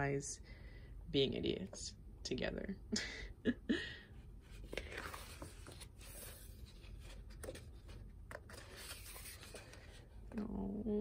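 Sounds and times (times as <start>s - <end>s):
page turning rustle: 4.7s - 10.0s.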